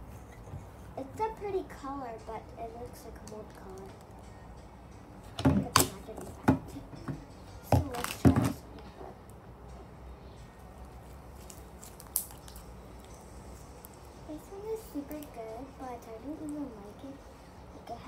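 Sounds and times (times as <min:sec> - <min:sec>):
plastic tub clacking on glass: 0:05.4 - 0:08.6
slime handling: 0:07.8 - 0:08.6, 0:11.0 - 0:13.2.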